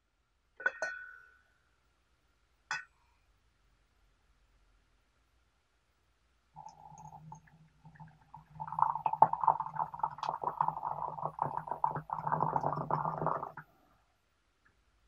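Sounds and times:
water pouring into teapot: 6.6 - 13.7.

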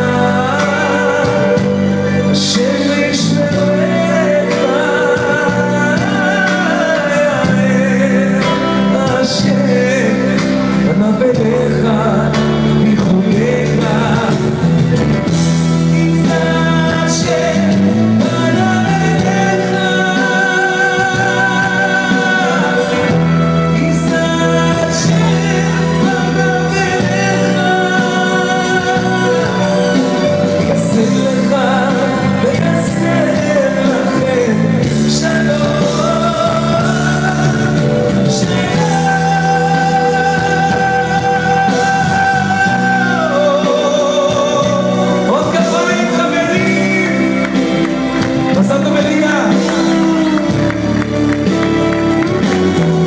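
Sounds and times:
amplified backing music: 0.0 - 53.0
man singing into microphone: 0.0 - 53.0.

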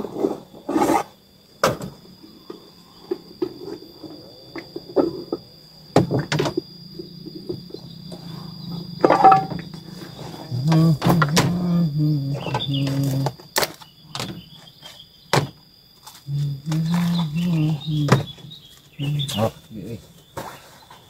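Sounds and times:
high drone of insects: 0.0 - 21.0
low hum: 2.2 - 13.3.

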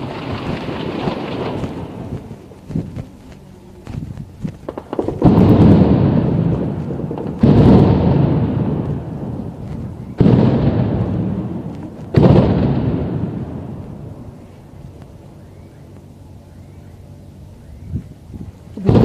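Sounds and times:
shell blasts with rolling echo: 4.7 - 14.4.

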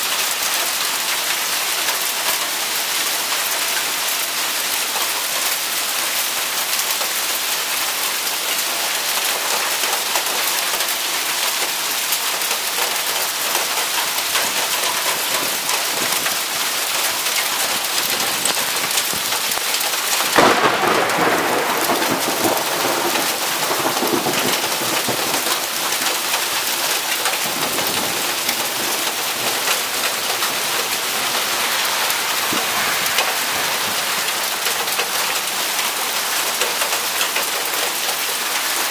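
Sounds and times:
hail and rain drumming: 0.0 - 38.9
thunderclap rumbling: 13.6 - 34.6.

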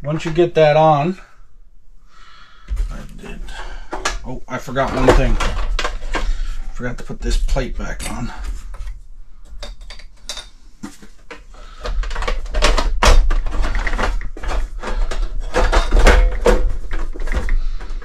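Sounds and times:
plastic heater casing knocking and rattling: 4.8 - 6.4, 9.6 - 18.0.

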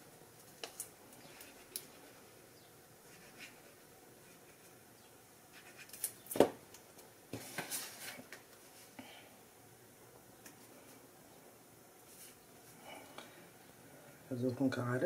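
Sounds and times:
paper rustling and sliding: 7.3 - 8.9.

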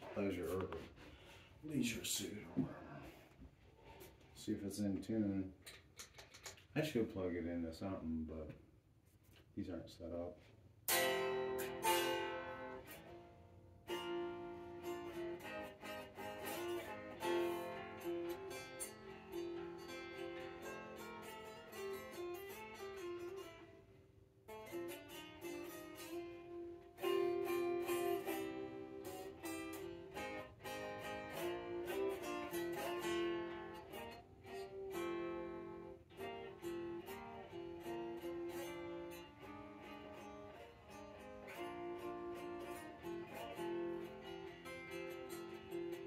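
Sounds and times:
unplugged electric guitar: 10.9 - 46.0.

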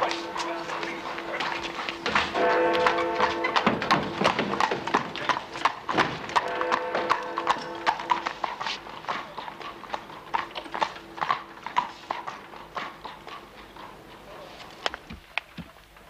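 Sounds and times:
horse hooves clip-clopping on street: 0.0 - 16.0.

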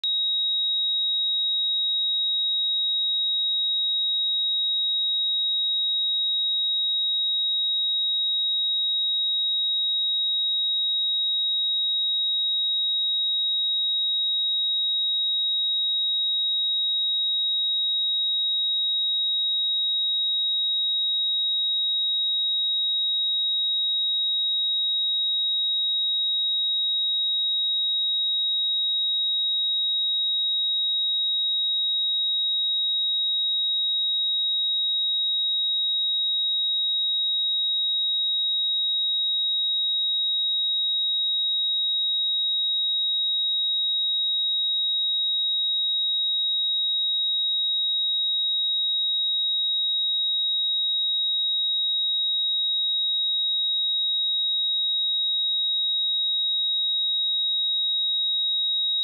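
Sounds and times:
high-pitched sine-wave test tone: 0.0 - 59.0.

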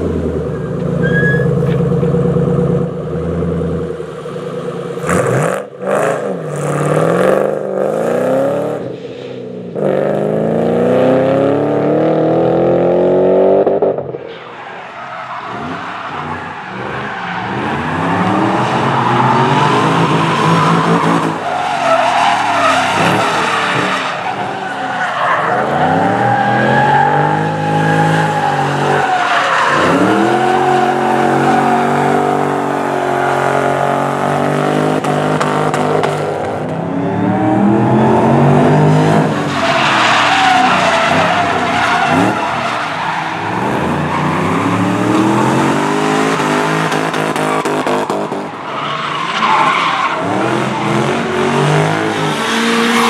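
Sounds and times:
tyres squealing and skidding: 0.2 - 2.2, 14.2 - 35.8, 36.9 - 53.0
car engine revving: 15.3 - 53.0.

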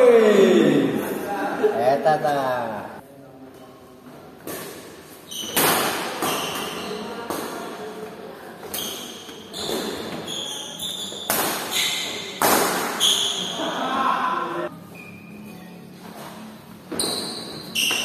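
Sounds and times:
shoes squeaking on court floor: 5.1 - 7.4, 8.6 - 13.6, 14.6 - 18.0
rackets hitting shuttlecock: 11.2 - 13.4.

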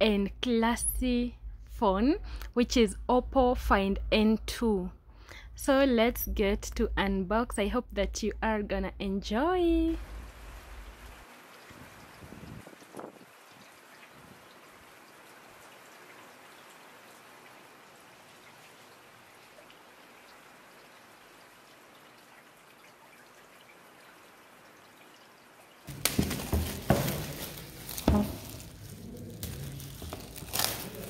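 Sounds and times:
faint steady hiss: 5.0 - 31.0
plastic film crinkling: 25.9 - 31.0.

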